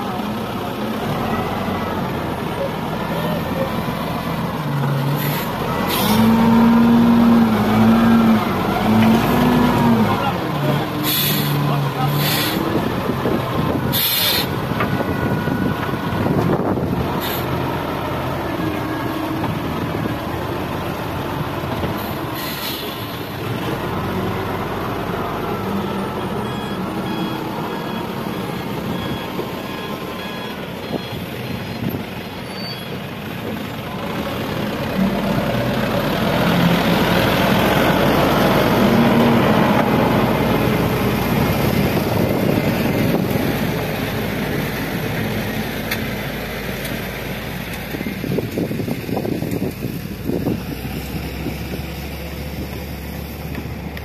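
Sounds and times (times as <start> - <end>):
diesel engines running: 0.0 - 54.0
truck engine pulling away: 0.0 - 54.0
reversing alarm beeping: 25.8 - 31.3.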